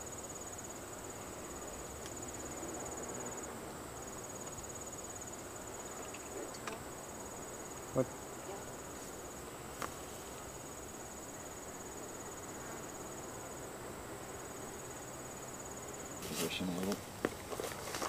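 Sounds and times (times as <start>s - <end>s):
insect trilling: 1.4s - 9.4s
rustling handling noises: 16.2s - 18.0s.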